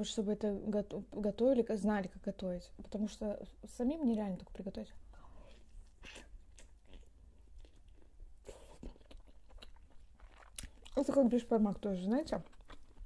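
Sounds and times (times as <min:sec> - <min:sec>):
soft crunches of crisp dough: 0:05.4 - 0:13.0
chewing and biting: 0:05.6 - 0:11.2, 0:12.3 - 0:13.0.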